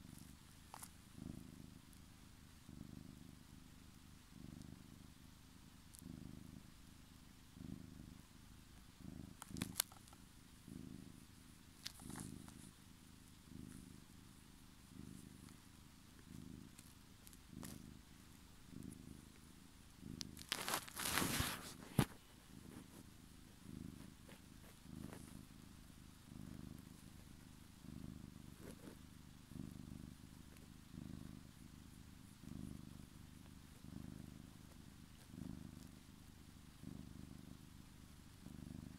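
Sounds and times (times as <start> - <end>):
cat purring: 0.0 - 38.9
noisy scuffle: 20.4 - 22.2.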